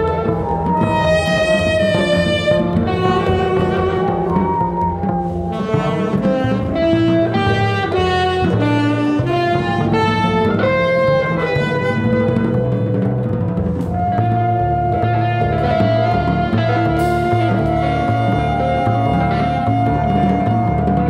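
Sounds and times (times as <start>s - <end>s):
guitar: 0.0s - 21.0s
saxophone melody: 0.0s - 21.0s
upright bass: 0.0s - 21.0s.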